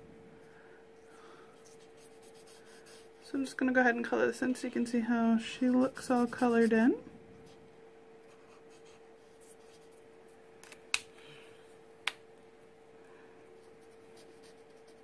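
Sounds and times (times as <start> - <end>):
marker scratching on cardstock: 5.9 - 6.9, 13.6 - 15.0.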